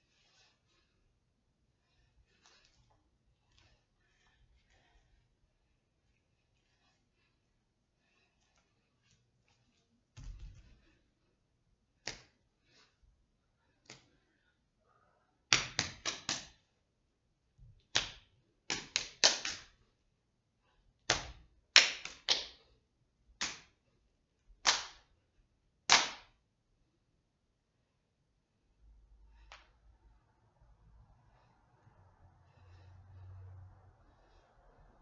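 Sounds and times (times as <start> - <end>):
hand slaps: 12.0 - 12.4, 15.5 - 16.6, 17.8 - 19.8, 21.1 - 22.6, 23.4 - 23.8, 24.6 - 25.1, 25.9 - 26.4.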